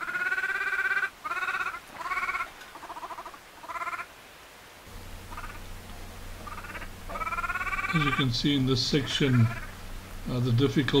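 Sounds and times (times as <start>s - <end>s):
monkey buzzy bleating cries: 0.0s - 4.1s, 5.3s - 5.7s, 6.4s - 8.4s, 9.0s - 9.8s
low hum: 4.9s - 11.0s.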